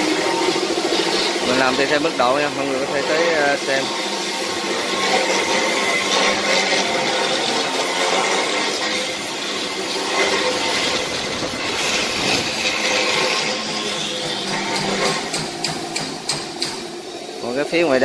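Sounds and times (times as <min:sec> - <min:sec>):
machinery clatter and rumble: 0:09.3 - 0:17.2.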